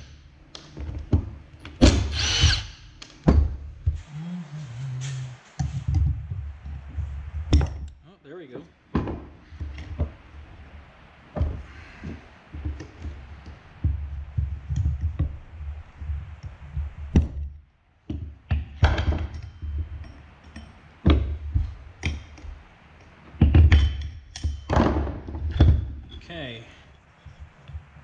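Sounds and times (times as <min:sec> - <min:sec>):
wheel thumping on wooden bench: 0:23.3 - 0:26.0.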